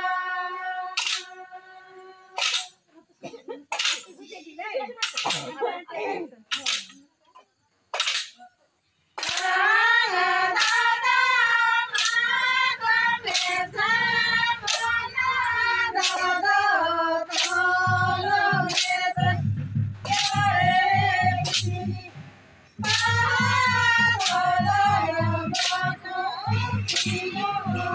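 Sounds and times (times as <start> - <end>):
women singing together: 0.0 - 3.4, 9.2 - 22.2, 22.8 - 27.9
sharp percussive strikes: 0.9 - 1.6, 2.4 - 2.8, 3.7 - 4.2, 5.0 - 5.6, 7.9 - 8.5, 9.2 - 27.9.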